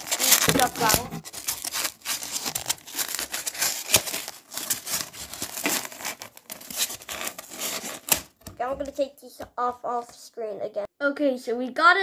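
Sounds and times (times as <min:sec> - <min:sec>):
cardboard and packing rustling: 0:00.0 - 0:09.1.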